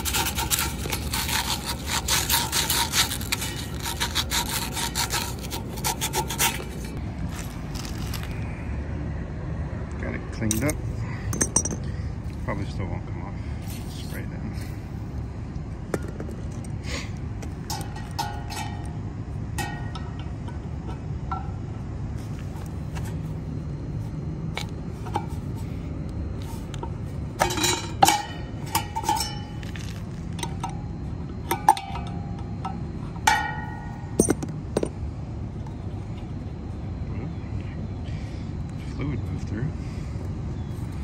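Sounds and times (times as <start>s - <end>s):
wrench tapping metal: 10.5s - 11.8s.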